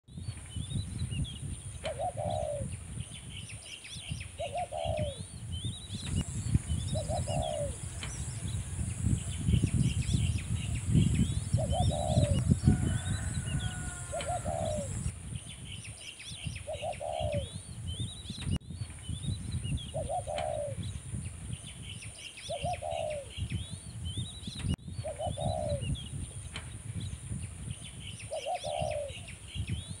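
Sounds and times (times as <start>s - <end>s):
birds chirping: 5.9s - 15.1s
low rumble: 6.2s - 13.2s.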